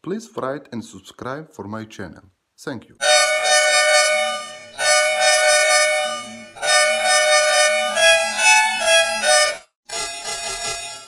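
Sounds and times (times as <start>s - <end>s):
bus air horn blasts: 3.0s - 9.7s.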